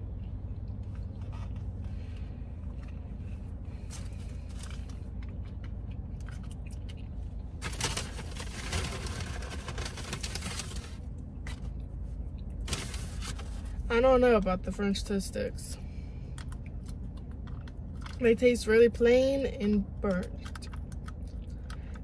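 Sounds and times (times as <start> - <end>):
car interior rumble: 0.0 - 22.0
food packaging crinkling: 7.6 - 11.6, 12.6 - 13.8.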